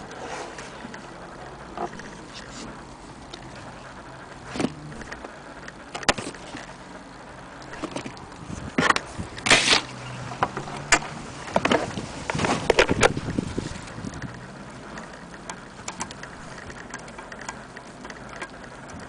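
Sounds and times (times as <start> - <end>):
scrape or rustle: 0.1 - 1.0, 9.5 - 10.3, 11.6 - 13.9
record player handling clicks: 4.5 - 6.7.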